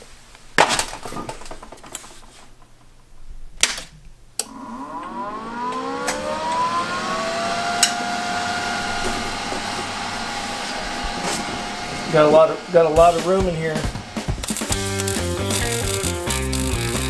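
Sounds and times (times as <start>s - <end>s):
cooling fan whine and hum: 4.1s - 17.0s
welder switch click: 4.4s - 6.6s.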